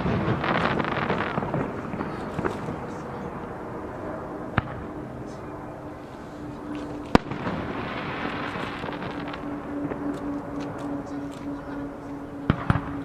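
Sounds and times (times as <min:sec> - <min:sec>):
firework crackling hiss: 0:00.0 - 0:03.4, 0:06.4 - 0:13.0.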